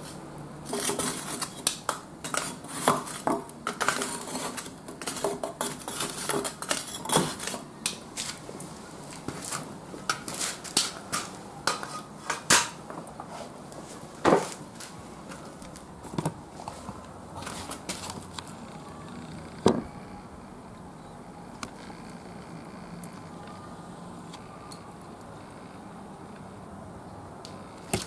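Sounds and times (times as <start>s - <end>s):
charcoal popping and cracking: 0.8s - 8.4s, 9.2s - 12.8s.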